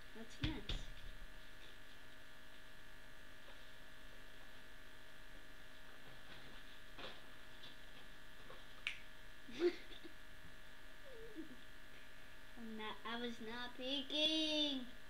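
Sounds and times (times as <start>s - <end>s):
electrical mains hum: 0.0s - 15.0s
faint soft rustles: 0.4s - 8.8s.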